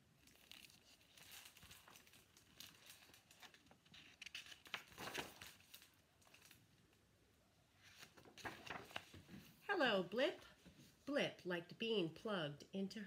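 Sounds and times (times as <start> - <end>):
book pages rustling: 0.2 - 6.7, 7.7 - 9.6.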